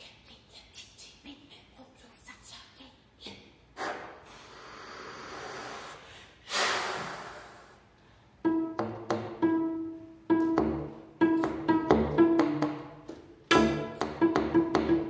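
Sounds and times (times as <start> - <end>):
breathy air noise: 3.8 - 8.5
pizzicato cello notes: 8.4 - 15.0.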